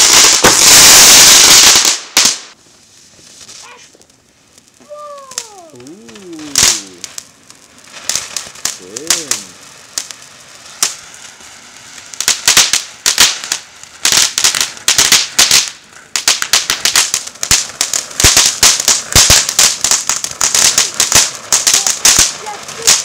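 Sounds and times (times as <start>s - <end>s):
firework pops: 0.0s - 11.6s, 12.2s - 23.0s
firework fountain crackling: 0.0s - 23.0s.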